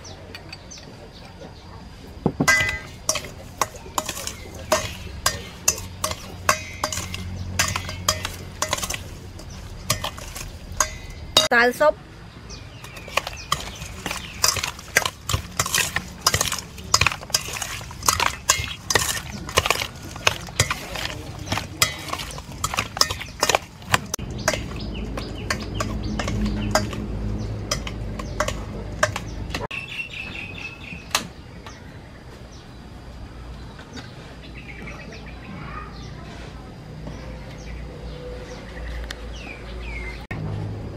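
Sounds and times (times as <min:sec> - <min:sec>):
clinks against metal bowl: 0:02.4 - 0:11.6, 0:12.8 - 0:29.7
bird chirping: 0:02.5 - 0:15.4, 0:18.1 - 0:32.9.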